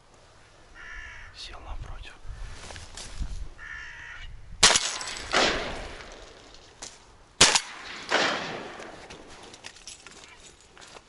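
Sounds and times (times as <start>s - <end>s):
shotgun shots: 4.6s - 6.4s, 7.4s - 9.0s
rolling echo: 4.6s - 6.7s, 7.4s - 9.5s.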